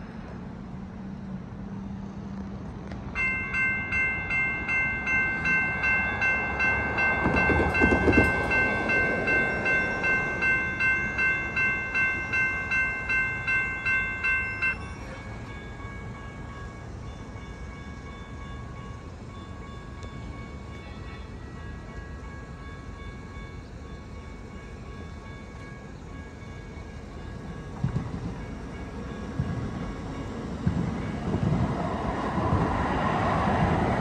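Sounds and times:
railroad crossing bell ringing: 3.1 - 32.5
rushing noise: 30.6 - 34.0.

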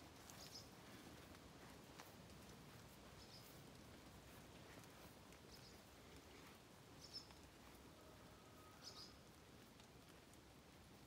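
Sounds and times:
faint high bird chirps: 7.0 - 7.4, 8.4 - 9.2.

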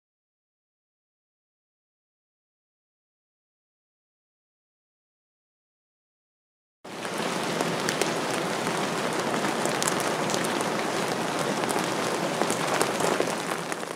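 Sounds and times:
steady rain falling: 6.9 - 13.9.

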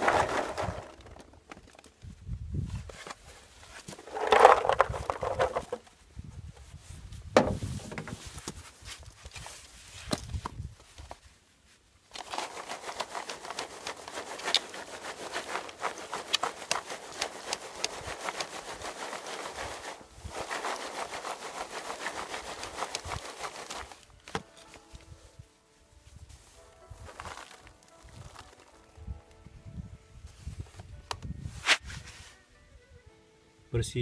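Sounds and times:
garlic rattling in plastic crate: 0.0 - 1.9, 4.0 - 5.8, 12.1 - 24.0.

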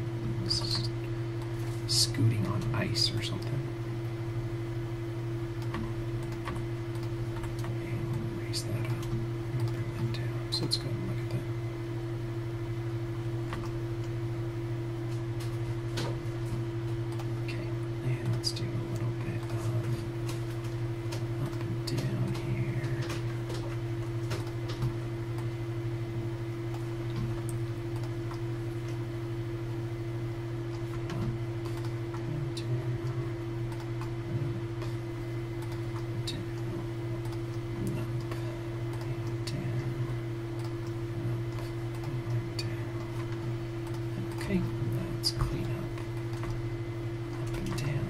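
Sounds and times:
steady low hum: 0.0 - 48.0
computer mouse and keyboard clicks: 5.6 - 8.2, 18.2 - 25.5, 30.7 - 32.3, 45.3 - 46.6.

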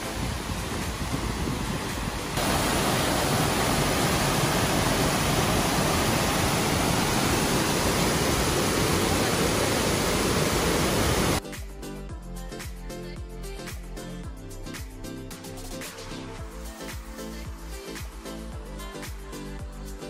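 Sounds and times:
waterfall rushing: 0.0 - 11.4.

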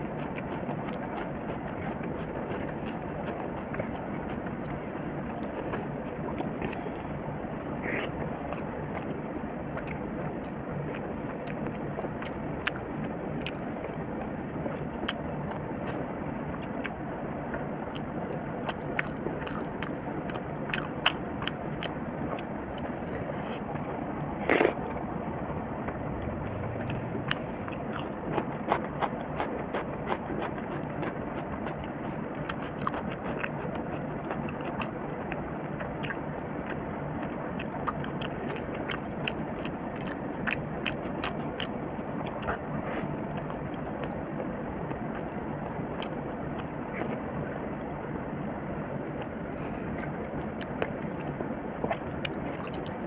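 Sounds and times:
person chewing: 0.0 - 7.1, 9.8 - 13.7, 17.9 - 24.8, 26.8 - 44.2, 44.8 - 47.2, 49.6 - 53.0
wet mouth clicks: 17.9 - 24.8, 26.8 - 44.2, 46.0 - 47.2, 50.0 - 53.0
fingers squishing rice: 27.3 - 34.9.

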